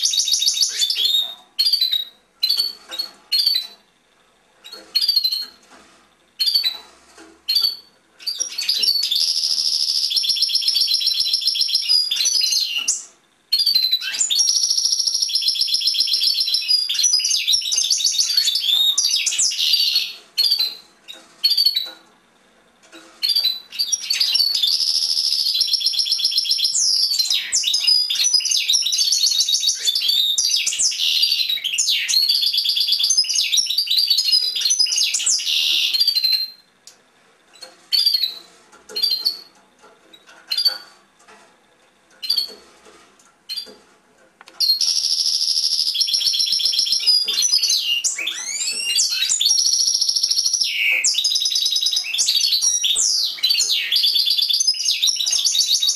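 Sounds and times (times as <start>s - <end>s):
goldfinch singing: 23.2s - 36.6s, 44.6s - 55.9s.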